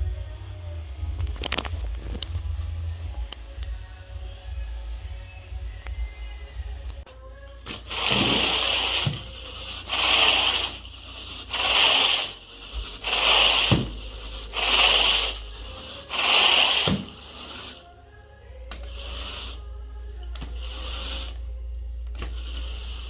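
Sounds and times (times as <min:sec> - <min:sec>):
carpet rake brushing carpet: 0:07.7 - 0:17.9, 0:18.8 - 0:19.6, 0:20.4 - 0:21.4, 0:22.2 - 0:23.0.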